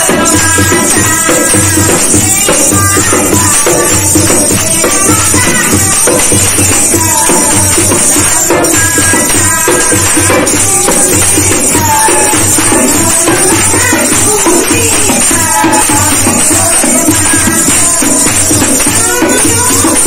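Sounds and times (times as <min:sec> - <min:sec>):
hand drum rhythm: 0:00.0 - 0:20.0
women singing devotional song: 0:00.0 - 0:20.0.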